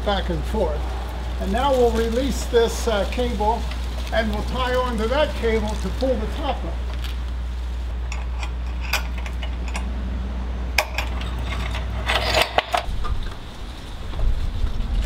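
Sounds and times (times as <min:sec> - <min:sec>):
steady low rumble: 0:00.0 - 0:15.0
short metallic rattle: 0:08.0 - 0:09.9, 0:10.8 - 0:13.2.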